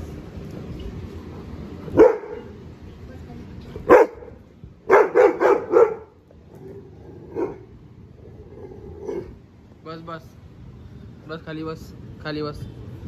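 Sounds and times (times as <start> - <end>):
dog barking deeply: 1.9 - 2.5, 3.8 - 6.2, 7.2 - 7.8, 8.4 - 9.4.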